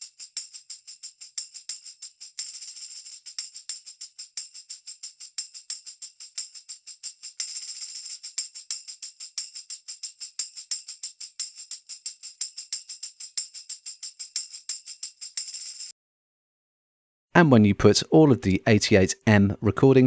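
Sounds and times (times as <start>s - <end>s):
tambourine jingle hits: 0.0s - 15.9s
tambourine shaken roll: 0.0s - 15.9s.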